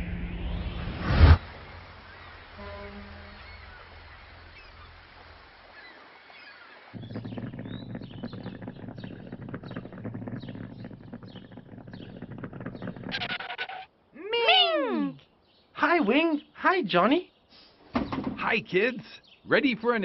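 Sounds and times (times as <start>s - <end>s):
faint birds chirping: 1.6s - 20.0s
cartoon vehicle engine running: 7.0s - 13.8s
loud voice-like call: 14.2s - 15.2s.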